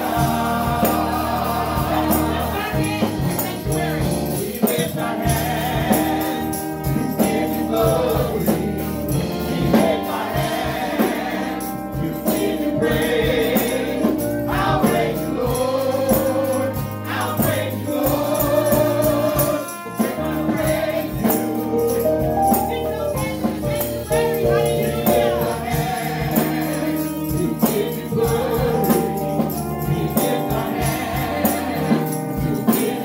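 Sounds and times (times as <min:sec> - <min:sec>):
backing singers: 0:00.0 - 0:33.0
instrumental accompaniment: 0:00.0 - 0:33.0
percussion beat: 0:00.0 - 0:33.0
woman singing lead: 0:22.1 - 0:26.2.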